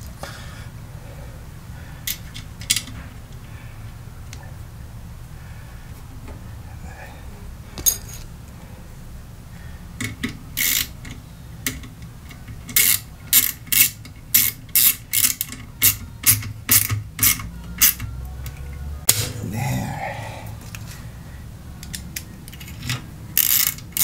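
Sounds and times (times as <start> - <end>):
ratchet wrench clicking: 10.1 - 11.8, 12.7 - 19.3, 21.8 - 24.0.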